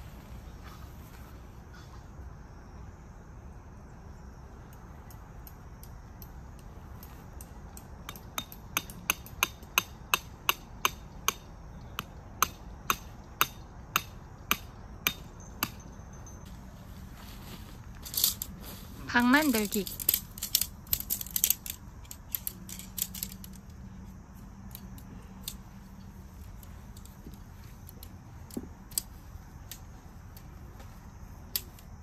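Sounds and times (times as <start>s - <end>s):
hammer striking tent peg: 8.1s - 15.8s.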